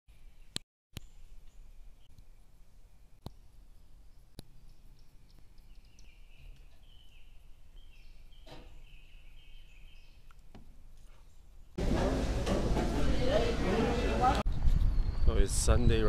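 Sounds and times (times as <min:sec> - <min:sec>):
faint bird chirps: 0:00.2 - 0:10.4.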